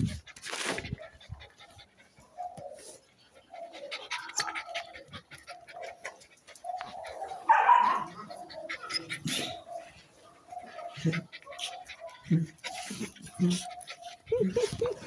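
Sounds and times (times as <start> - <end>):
puppies whining and yipping: 0.0 - 15.0
puppy yelping: 4.1 - 9.6.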